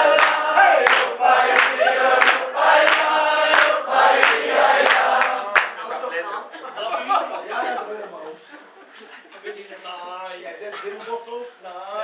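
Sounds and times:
group singing a sing-along: 0.0s - 6.4s
sharp hand claps: 0.1s - 5.8s.

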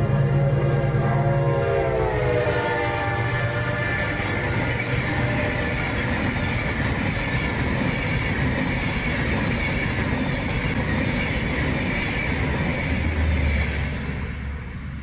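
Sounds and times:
train wheels rumbling on rails: 0.0s - 15.0s
faint high wheel squeal: 2.2s - 10.0s.

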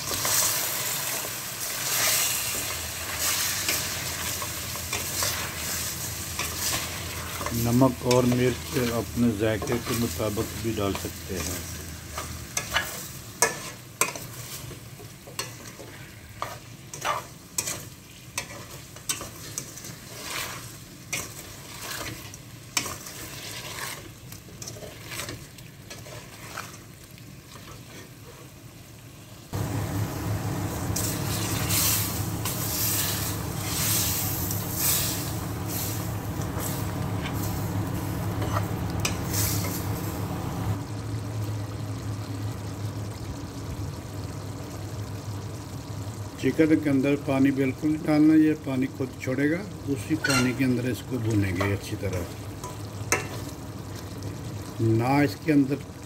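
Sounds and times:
spatula scraping a pot: 0.0s - 8.9s, 12.1s - 26.9s, 27.5s - 28.6s
chicken sizzling: 0.0s - 56.0s
low hum: 29.6s - 43.7s.

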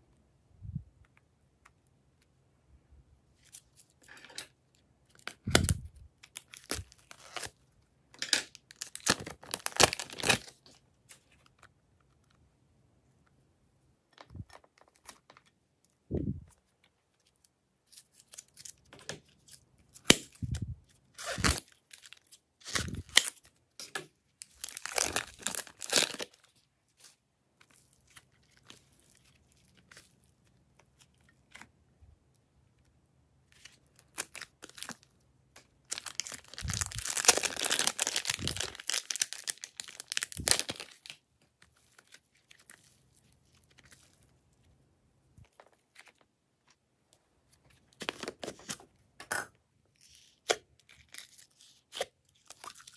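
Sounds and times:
clay crackling and tearing: 3.4s - 12.4s, 14.1s - 31.8s, 33.5s - 44.7s, 49.9s - 52.9s.

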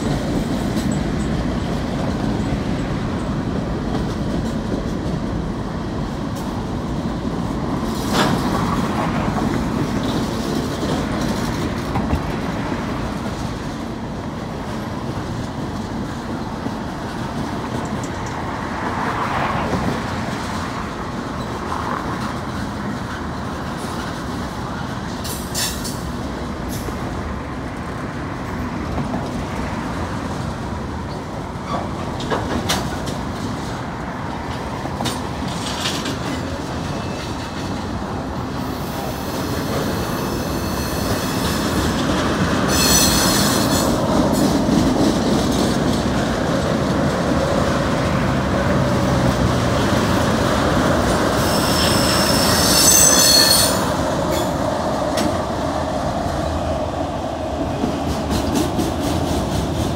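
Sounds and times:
freight train wheels rumbling: 0.0s - 59.9s
wheel flange squeal: 42.7s - 43.9s, 51.4s - 54.5s.

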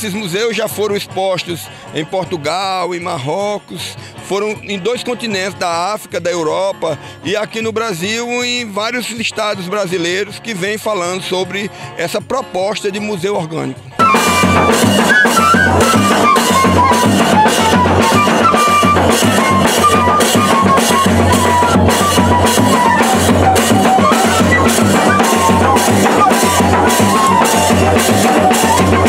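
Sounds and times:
fifes playing a melody: 12.6s - 29.0s
bass drum beat: 14.0s - 29.0s
snare drum: 14.0s - 29.0s.

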